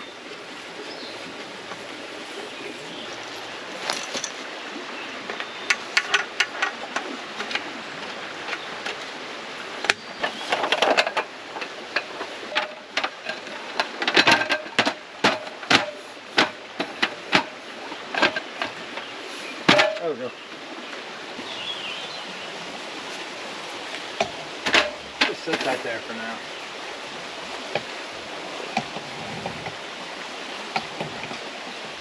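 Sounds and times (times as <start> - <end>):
steady background hiss: 0.0 - 32.0
camping gear knocking and clicking: 2.9 - 4.5, 5.2 - 9.2, 9.8 - 20.3, 23.1 - 26.3, 27.4 - 30.0, 30.6 - 31.9.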